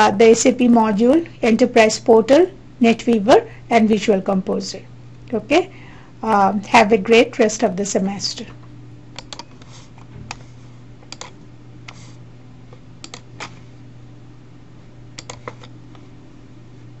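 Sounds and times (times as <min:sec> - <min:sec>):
steady low hum: 0:00.0 - 0:17.0
computer mouse clicks: 0:09.1 - 0:09.7, 0:11.1 - 0:12.0, 0:13.0 - 0:13.6, 0:15.2 - 0:15.8.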